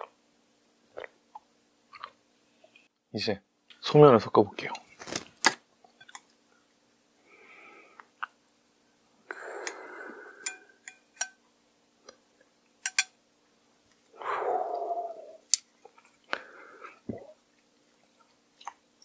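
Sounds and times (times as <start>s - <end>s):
chopsticks clicking on glass: 12.8s - 13.1s.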